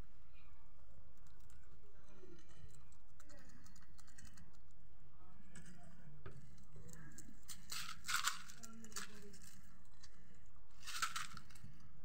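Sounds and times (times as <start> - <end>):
rabbits nibbling: 0.0 - 12.0
small clicks and scuffs: 5.5 - 11.9.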